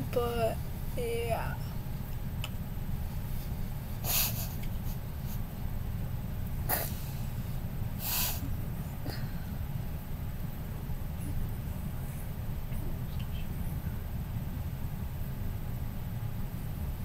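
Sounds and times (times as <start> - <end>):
low background rumble: 0.0 - 17.0
breathy exhales through the nose: 6.7 - 8.5.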